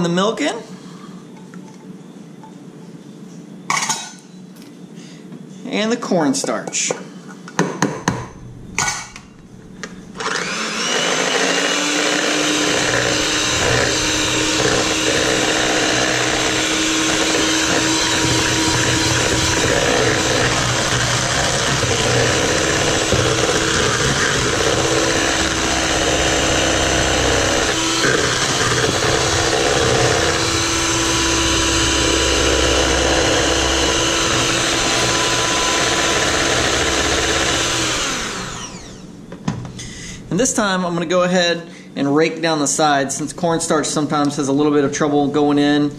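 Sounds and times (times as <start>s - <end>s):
electric hand mixer whirring: 10.1s - 39.1s.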